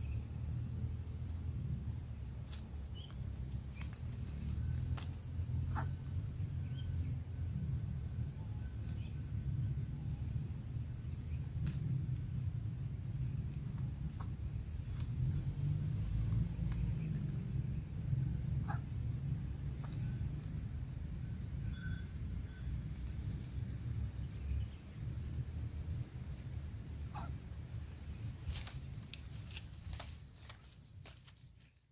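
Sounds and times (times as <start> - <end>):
insects droning: 0.0 - 31.9
low steady rumble: 0.0 - 31.9
faint clicks and rustles: 28.0 - 31.9.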